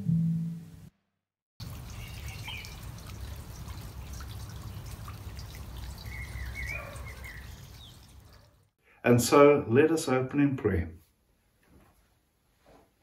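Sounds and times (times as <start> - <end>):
water dripping and trickling: 1.6 - 8.8.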